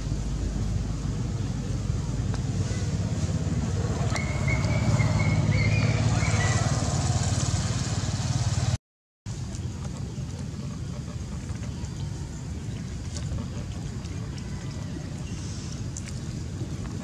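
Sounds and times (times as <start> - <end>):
engine humming: 0.0 - 17.0.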